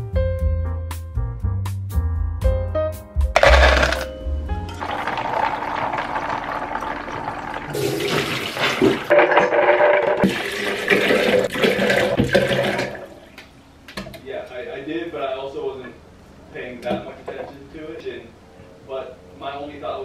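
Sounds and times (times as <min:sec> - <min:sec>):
almonds tipped into plastic jug: 0:03.4 - 0:04.1
water pouring into jug: 0:04.7 - 0:09.1, 0:10.2 - 0:13.2.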